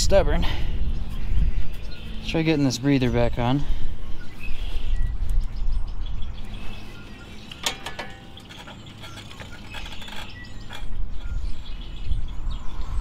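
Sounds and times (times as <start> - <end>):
sharp clicks and knocks of parts: 7.4 - 11.4.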